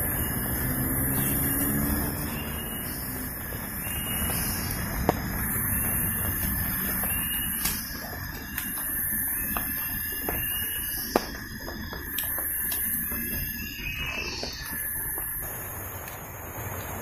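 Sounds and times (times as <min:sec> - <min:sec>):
faint steady whine: 0:00.0 - 0:17.0
high insect buzz: 0:00.0 - 0:17.0
sharp ticks: 0:04.3 - 0:16.2.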